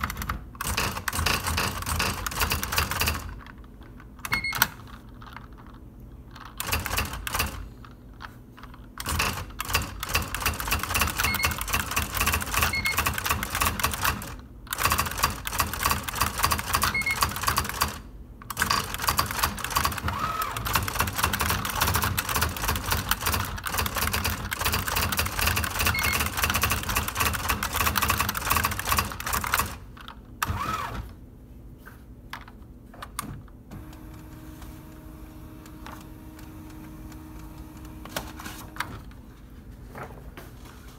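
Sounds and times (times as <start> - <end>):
electronic typewriter typing: 0.0 - 3.6, 4.2 - 5.7, 6.4 - 7.8, 8.6 - 31.0.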